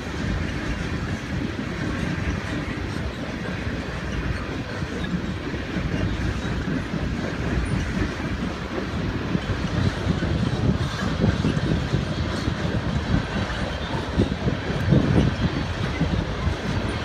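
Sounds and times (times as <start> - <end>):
train cars rumbling and clattering: 0.0 - 17.0.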